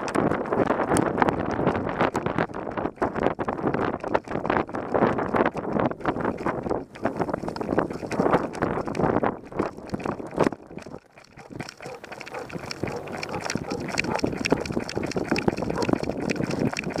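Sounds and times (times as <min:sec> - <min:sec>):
dog trotting on gravel: 0:11.2 - 0:17.0
harness jostling: 0:11.3 - 0:16.7.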